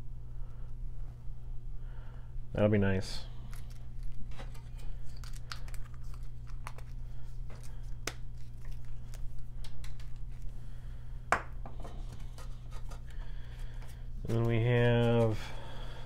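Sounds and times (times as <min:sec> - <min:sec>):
steady low hum: 0:00.0 - 0:16.0
plastic crinkling: 0:03.4 - 0:10.5.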